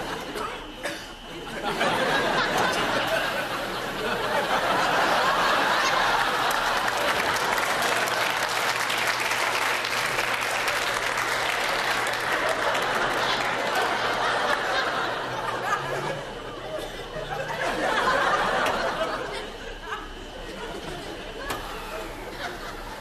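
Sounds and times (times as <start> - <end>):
audience laughing: 0.0 - 23.0
audience applauding: 2.4 - 16.0.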